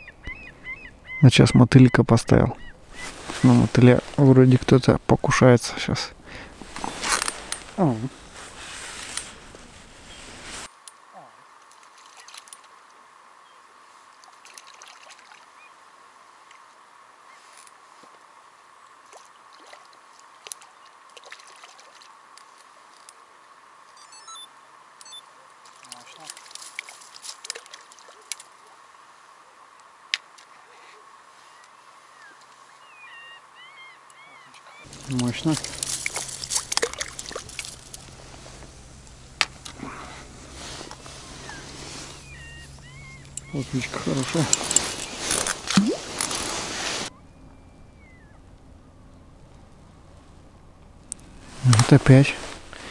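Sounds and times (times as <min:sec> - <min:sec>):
faint rustling: 0:02.6 - 0:10.9, 0:34.6 - 0:47.2, 0:48.4 - 0:52.9
small ticks: 0:11.6 - 0:13.0
water splashing and trickling: 0:11.6 - 0:13.0, 0:14.0 - 0:15.7, 0:18.9 - 0:23.3, 0:25.6 - 0:28.8, 0:34.7 - 0:39.9, 0:43.3 - 0:47.1
short bird chirps: 0:42.2 - 0:43.7, 0:47.1 - 0:48.4.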